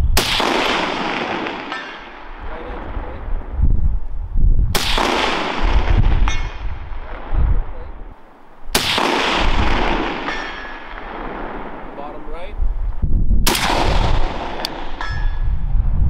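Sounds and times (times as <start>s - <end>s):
rifle shots with echo: 0.2s - 3.2s, 4.7s - 7.8s, 8.7s - 12.2s, 13.4s - 15.4s.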